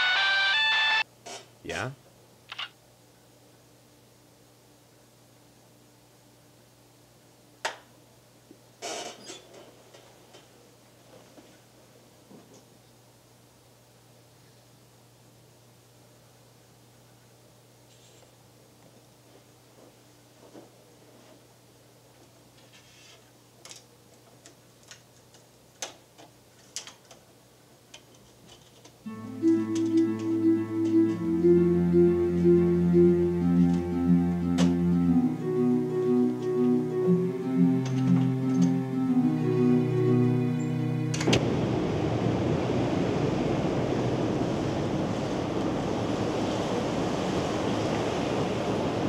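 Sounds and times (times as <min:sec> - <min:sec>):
low sustained music: 0:29.1 - 0:41.8.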